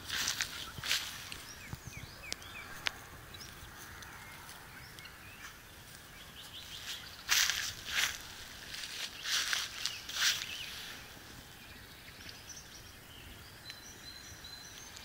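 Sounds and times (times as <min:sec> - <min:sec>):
footsteps swishing through dry grass: 0:00.0 - 0:01.8, 0:06.4 - 0:11.4
small birds chirping: 0:00.0 - 0:15.0.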